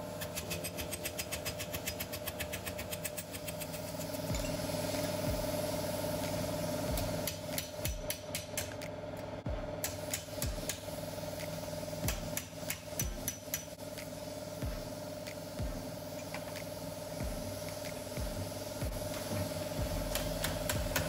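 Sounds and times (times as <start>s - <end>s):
steady background hum: 0.0s - 21.0s
hammer striking metal strip: 0.2s - 4.6s, 7.0s - 8.9s, 9.8s - 14.1s, 20.0s - 21.0s.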